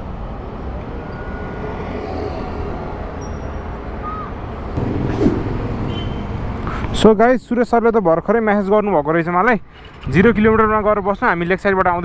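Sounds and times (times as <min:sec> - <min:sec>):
street traffic rumble: 0:00.0 - 0:10.6.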